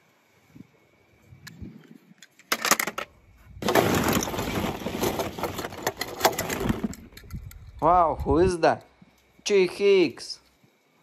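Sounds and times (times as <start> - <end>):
plastic balls clattering: 2.6 - 7.2.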